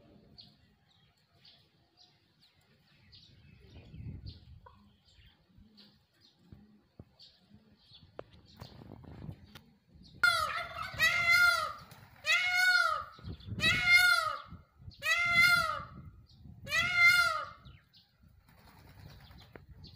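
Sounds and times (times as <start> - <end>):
peacock calling: 10.2 - 19.2.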